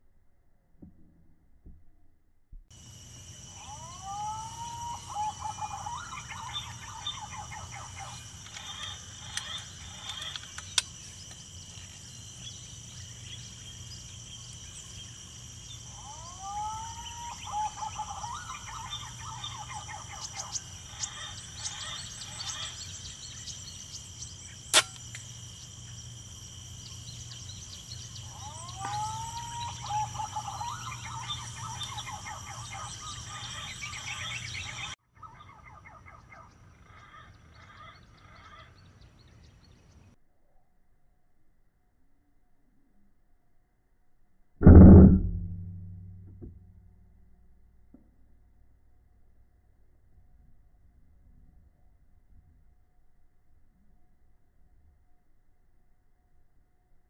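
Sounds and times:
high-pitched insect drone: 0:02.8 - 0:35.0
whistled bird song: 0:03.4 - 0:24.9, 0:26.8 - 0:36.6
sharp click: 0:24.7 - 0:25.3.

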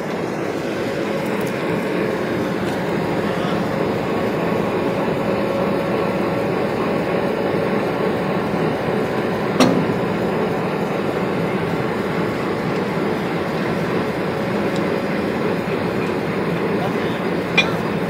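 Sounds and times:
diesel locomotive engine idling: 0:00.0 - 0:18.0
sharp metal clank: 0:17.6 - 0:17.9.

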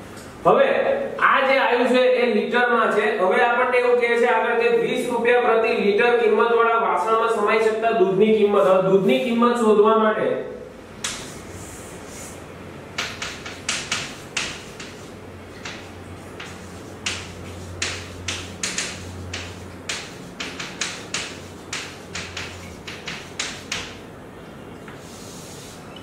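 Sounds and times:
chalk tapping and scratching: 0:11.0 - 0:24.0, 0:24.8 - 0:26.0.

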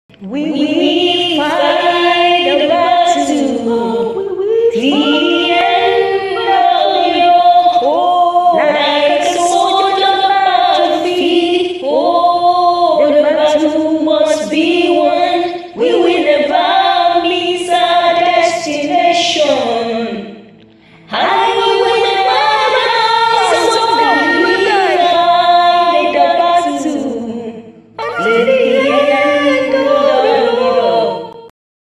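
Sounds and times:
woman singing unaccompanied: 0:00.2 - 0:20.3, 0:21.1 - 0:31.5.

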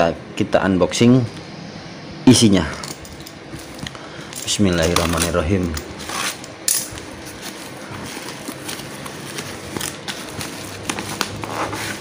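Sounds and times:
plastic wrapping crinkling: 0:04.4 - 0:12.0.

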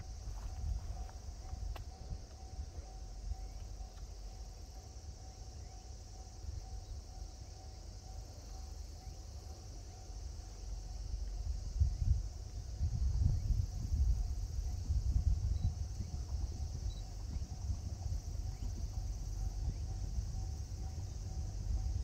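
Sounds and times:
wind rumble on microphone: 0:00.0 - 0:04.3, 0:11.0 - 0:22.0
faint pulsing tone: 0:00.0 - 0:22.0
insects chorus: 0:00.0 - 0:22.0.

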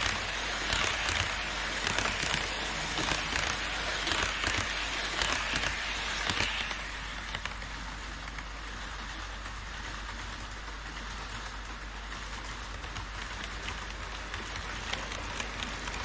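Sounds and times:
model train wheels rattling on rails: 0:00.0 - 0:16.0.

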